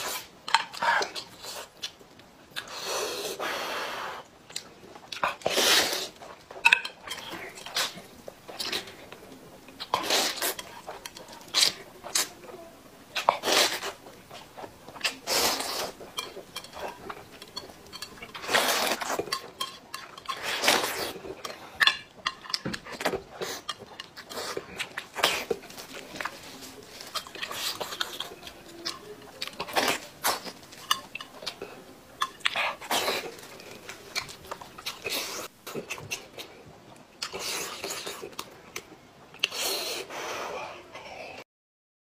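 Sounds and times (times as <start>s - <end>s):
open-mouthed chewing and smacking: 0.0s - 3.4s, 4.2s - 41.4s
slurping noodles: 5.3s - 6.2s, 9.8s - 12.3s, 13.2s - 17.3s, 18.3s - 19.4s.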